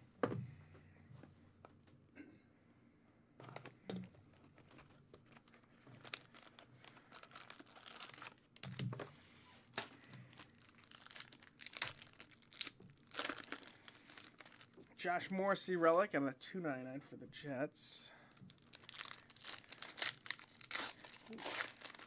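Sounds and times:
wrapper tearing and crinkling: 0:04.4 - 0:08.8, 0:09.6 - 0:14.9, 0:18.5 - 0:22.0.

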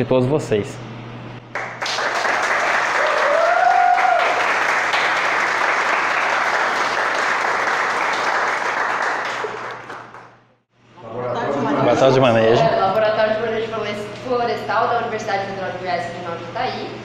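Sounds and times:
audience applauding: 0:01.5 - 0:10.4.

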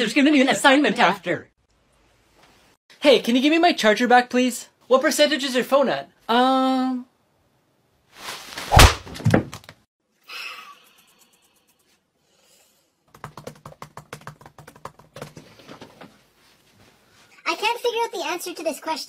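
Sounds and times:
laptop keyboard typing: 0:13.1 - 0:15.5.

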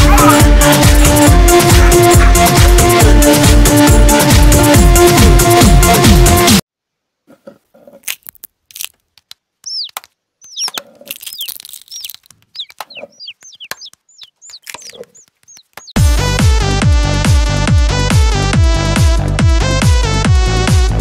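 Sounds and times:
chicks cheeping: 0:00.0 - 0:00.5, 0:09.6 - 0:16.0
electronic dance music: 0:00.0 - 0:03.9
eggshells cracking: 0:08.0 - 0:16.0.

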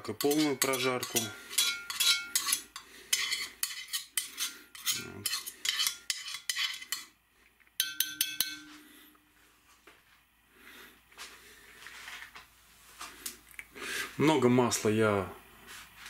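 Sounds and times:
spoon scraping cast iron pot: 0:00.0 - 0:07.2, 0:07.8 - 0:08.9
spoon clinking against pot: 0:00.2 - 0:02.6, 0:03.2 - 0:07.1, 0:07.8 - 0:09.0.

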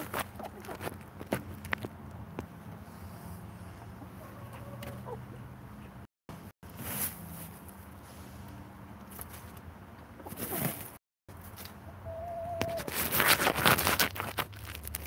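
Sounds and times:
hen clucking softly: 0:03.7 - 0:06.0.

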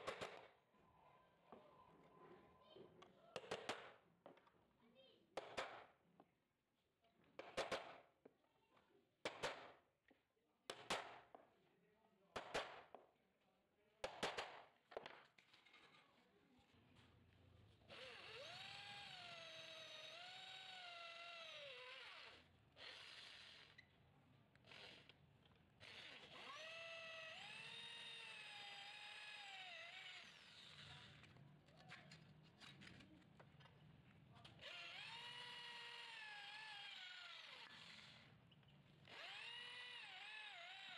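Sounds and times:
electric drill boring steel: 0:17.9 - 0:23.8, 0:25.8 - 0:31.4, 0:34.6 - 0:38.3, 0:39.0 - 0:40.9.

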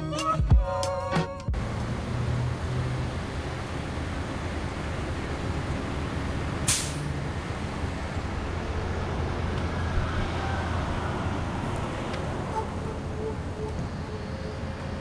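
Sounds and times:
street traffic rumble: 0:01.4 - 0:15.0
short sharp hiss: 0:06.7 - 0:07.1.

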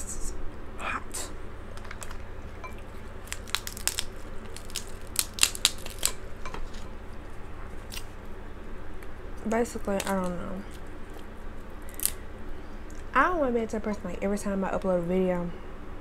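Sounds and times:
crab shells cracking: 0:01.7 - 0:06.9, 0:07.8 - 0:08.2, 0:09.0 - 0:12.3.

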